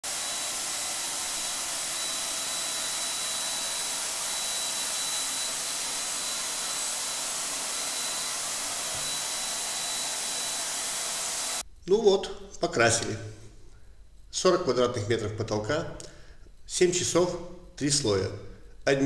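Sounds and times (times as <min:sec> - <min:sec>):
paint sprayer blower hissing: 0:00.0 - 0:11.6
thin high whine: 0:00.0 - 0:11.6.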